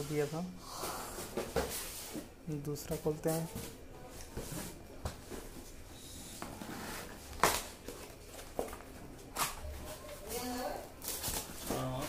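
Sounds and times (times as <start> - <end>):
cardboard boxes scraping: 6.5 - 7.3.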